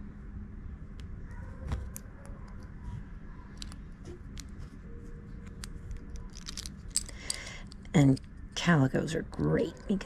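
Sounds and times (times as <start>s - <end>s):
faint steady hum: 0.0s - 10.0s
jewelry pliers clicking on metal ring: 5.5s - 8.3s.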